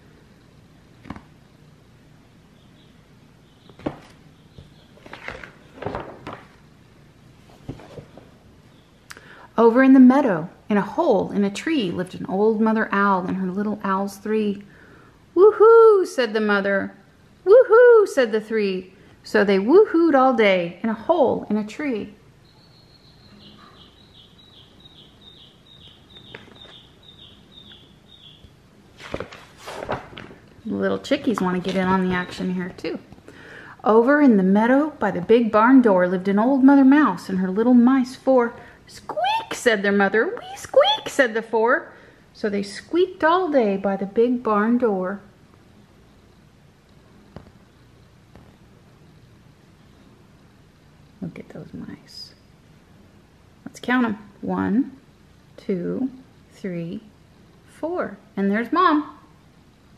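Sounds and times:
soft taps on book: 1.0 - 1.3, 47.3 - 47.6, 48.3 - 48.6
paper pages rustling: 3.7 - 6.6, 28.9 - 30.6
baby chicks peeping: 22.4 - 28.6.

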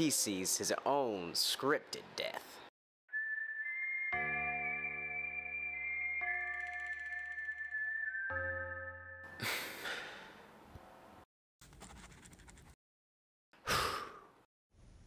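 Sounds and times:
background music: 3.1 - 11.2
breathy gasps: 9.4 - 10.4, 13.6 - 14.4
pen scratching on paper: 11.6 - 12.8.

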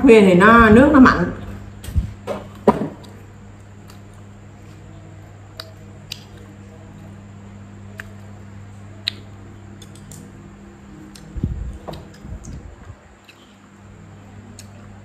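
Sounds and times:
steady low hum: 0.0 - 15.0
soft chewing: 3.0 - 15.0.

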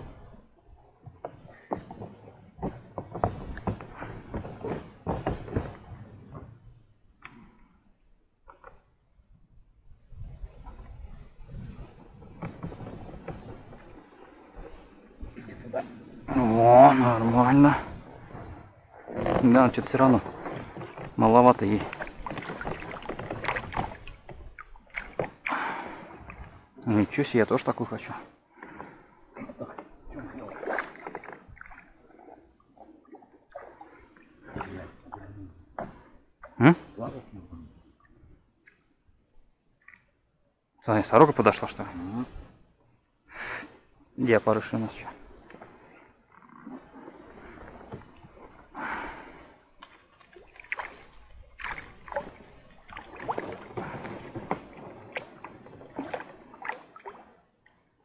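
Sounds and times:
water sloshing around boat: 0.0 - 7.8, 10.1 - 43.0, 43.9 - 58.0
gear rustling and knocking: 19.2 - 25.3
net handled in water: 19.2 - 25.6, 29.6 - 34.7, 49.6 - 57.9.

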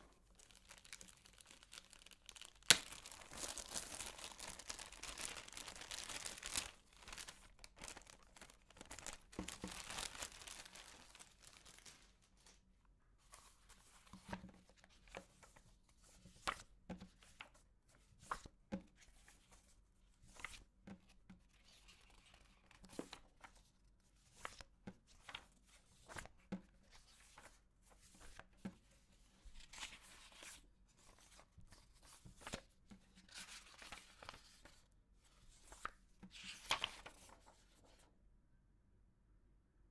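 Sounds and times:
paper sheets rustling: 0.1 - 12.6, 25.2 - 28.7, 29.4 - 34.8, 35.4 - 38.0
plastic bag crinkling: 0.2 - 12.2.

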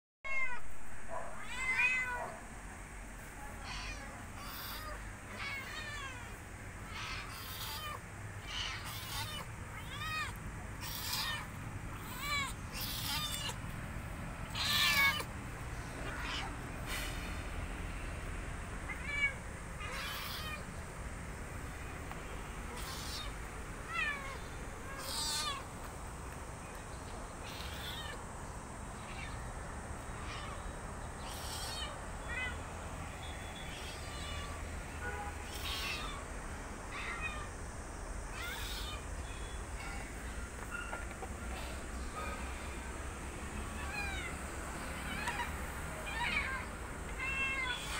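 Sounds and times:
kittens meowing: 0.3 - 0.6, 1.4 - 2.4, 3.6 - 13.7, 14.4 - 16.8, 18.8 - 20.8, 22.7 - 25.8, 27.4 - 28.3, 28.9 - 34.6, 35.4 - 37.6, 38.2 - 42.9, 43.7 - 47.9.

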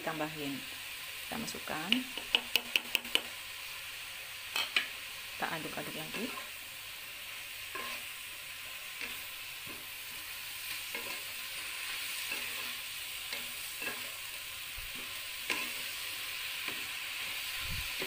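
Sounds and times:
vegetables sizzling in a frying pan: 0.0 - 18.0
spatula scraping a pan: 7.7 - 8.2, 10.7 - 18.0.

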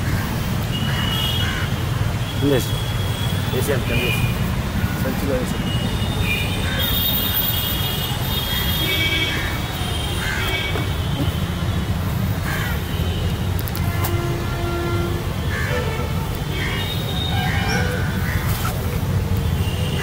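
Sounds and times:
bird calling: 15.5 - 19.0.

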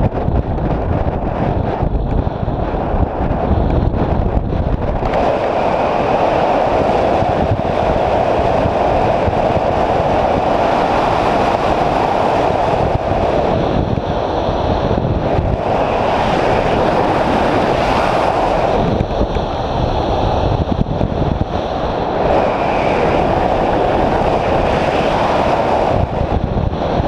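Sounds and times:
wind rushing over microphone: 0.0 - 27.0.

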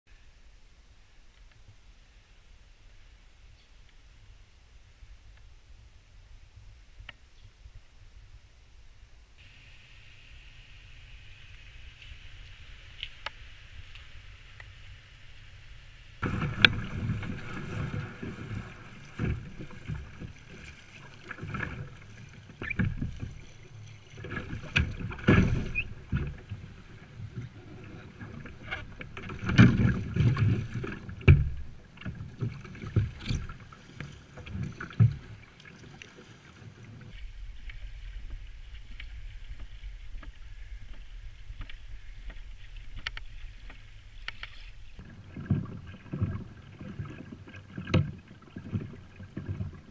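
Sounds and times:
low rumble on calm water: 0.1 - 49.9
faint ticks: 1.2 - 2.1, 11.4 - 15.0, 37.6 - 44.8
water splashing against kayak hull: 9.4 - 49.9.

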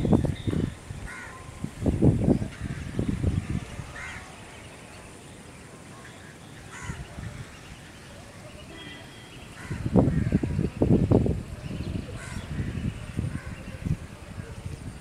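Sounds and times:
crows cawing: 1.1 - 1.4, 4.0 - 4.3, 6.7 - 7.0, 9.6 - 10.6, 12.2 - 13.6.

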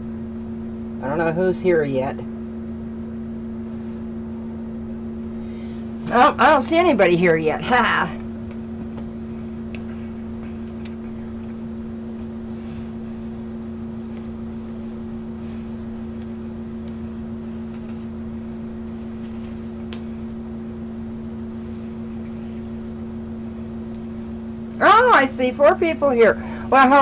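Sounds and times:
mechanical hum: 0.0 - 27.0.

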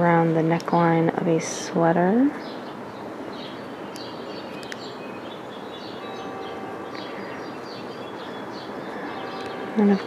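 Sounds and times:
background hiss: 0.0 - 10.0
knitting needles clicking: 3.9 - 4.8.

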